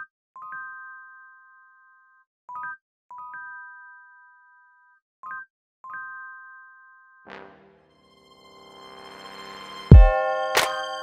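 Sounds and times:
bell-like chime music: 7.3 - 11.0.

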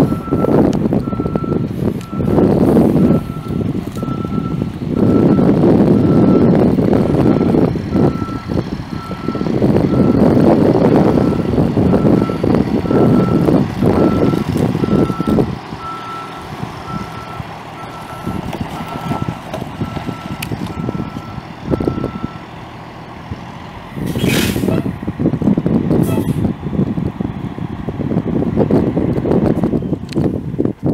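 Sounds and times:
backup alarm beeping: 0.0 - 10.3, 11.0 - 22.4
diesel engine running: 0.0 - 30.9
air brake hiss: 24.0 - 24.9, 26.0 - 26.4.

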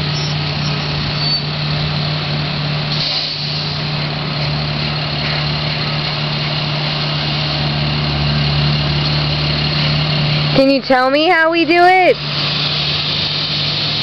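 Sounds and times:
engine humming: 0.0 - 14.0
rushing noise: 12.1 - 14.0.

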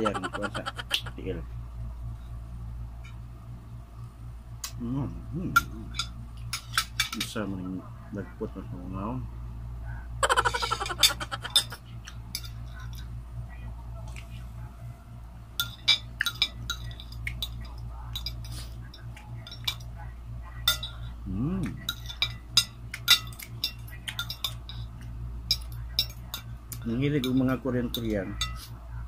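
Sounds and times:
fork clinking on glass plate: 21.8 - 24.8.

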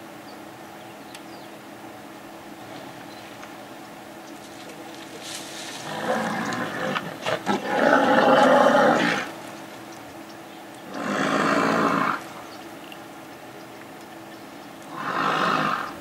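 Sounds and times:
lions growling: 5.7 - 9.4, 10.8 - 12.3, 14.9 - 16.0.

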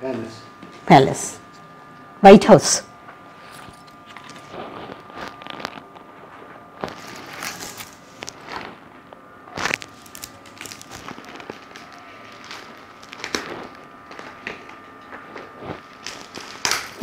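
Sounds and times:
plastic sleeves crinkling: 4.0 - 17.0.

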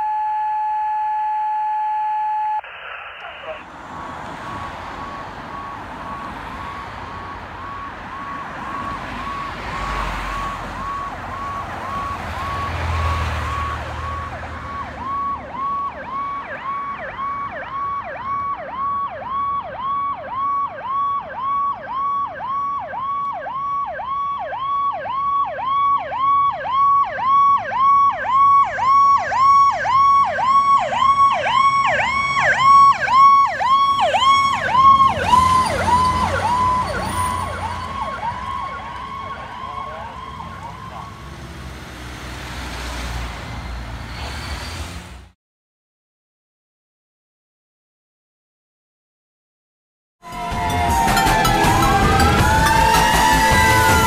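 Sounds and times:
fire truck electronic siren: 0.0 - 41.5, 50.2 - 54.0.

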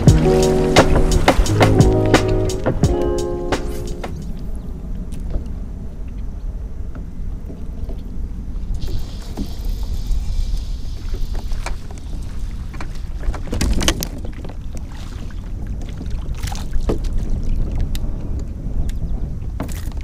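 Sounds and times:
wind rumbling on microphone: 0.0 - 20.0.

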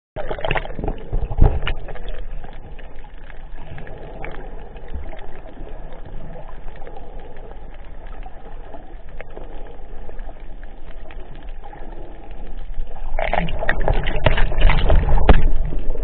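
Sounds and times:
muffled underwater noise: 0.2 - 16.0.

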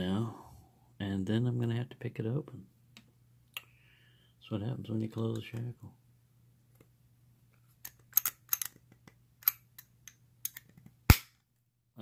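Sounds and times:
padlock metallic clicks: 9.4 - 11.3.

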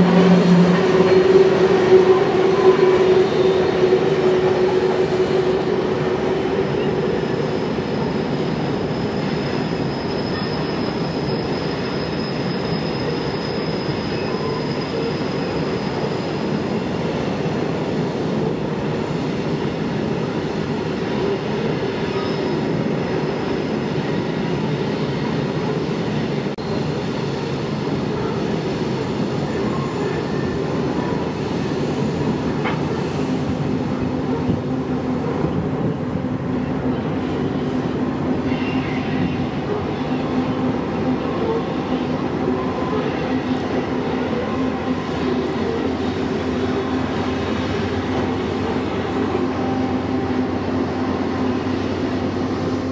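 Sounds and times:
train wheels rumbling on rails: 0.0 - 52.9
high wheel squeal: 6.4 - 17.0, 21.1 - 23.3.

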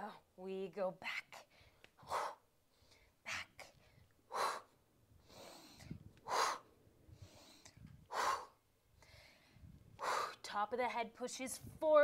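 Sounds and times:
woman breathing hard: 1.5 - 10.5.

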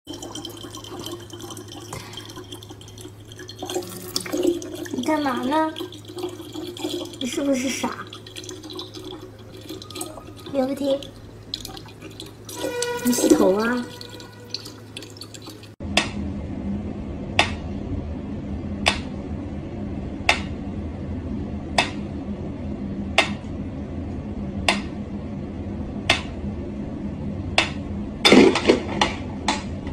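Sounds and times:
tap water trickling into bottle: 0.1 - 15.8
steady low hum: 0.1 - 29.9.

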